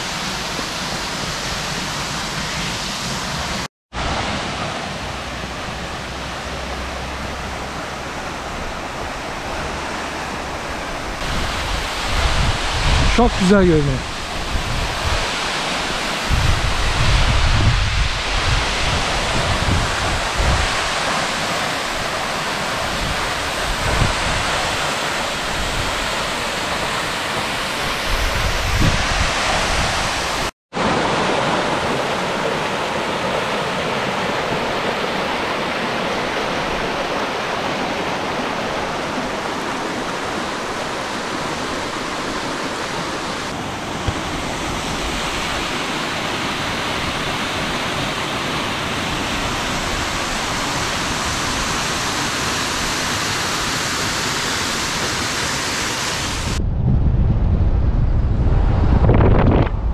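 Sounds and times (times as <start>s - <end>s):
wind rumbling on microphone: 3.4s - 30.5s, 56.1s - 59.9s.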